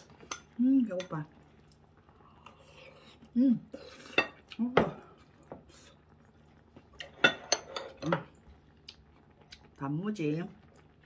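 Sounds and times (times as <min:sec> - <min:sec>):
bowl and utensils clinking on table: 0:07.1 - 0:08.3.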